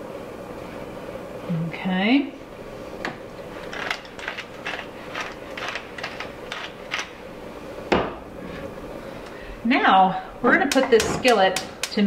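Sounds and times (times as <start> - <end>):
pepper mill grinding: 3.4 - 7.2.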